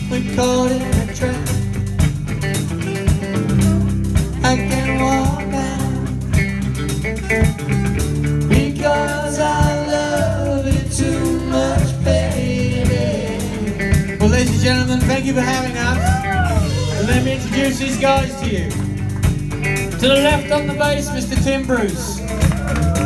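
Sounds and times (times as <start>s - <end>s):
person singing: 0.0s - 1.8s, 3.7s - 6.5s, 8.4s - 18.8s
bass guitar: 0.0s - 23.0s
drums: 0.0s - 23.0s
electric guitar: 0.0s - 23.0s.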